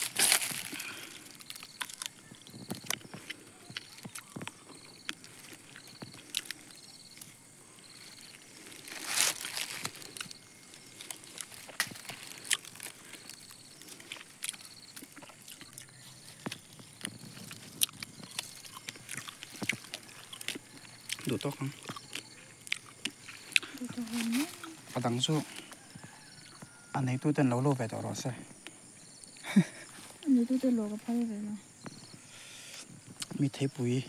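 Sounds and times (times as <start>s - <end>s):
loud crunches: 0.0s - 26.1s
dry leaves and twigs rustling: 0.0s - 27.0s.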